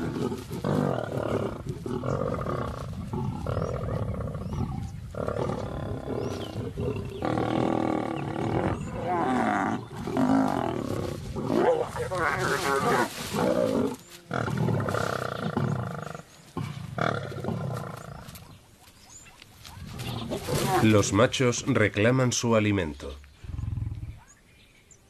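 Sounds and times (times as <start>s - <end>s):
lions growling and snarling: 0.0s - 18.6s, 19.8s - 21.7s, 23.3s - 24.4s.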